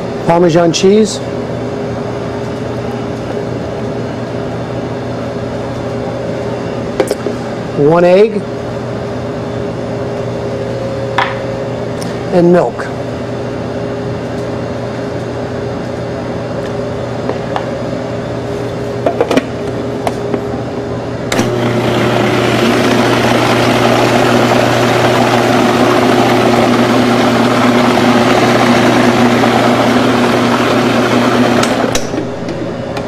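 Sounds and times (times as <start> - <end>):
food processor motor running: 21.3 - 33.0.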